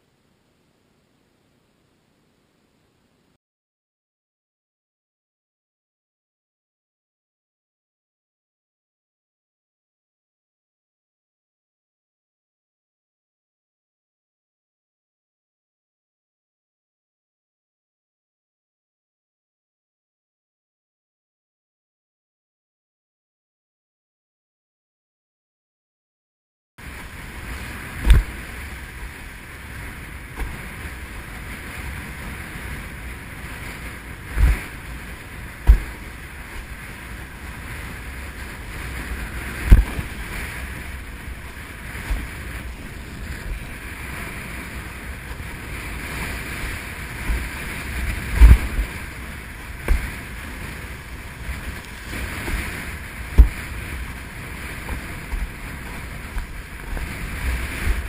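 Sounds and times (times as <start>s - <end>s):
wind and water rushing: 26.8s - 58.0s
wind noise on microphone: 26.8s - 58.0s
sharp low thumps: 35.6s - 36.0s, 39.6s - 40.2s, 48.3s - 48.9s, 53.3s - 53.8s.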